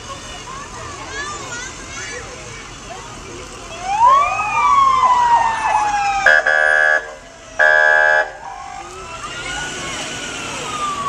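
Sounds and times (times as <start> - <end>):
fire truck siren wailing: 3.7 - 11.0
loud horn blasts: 6.3 - 8.7.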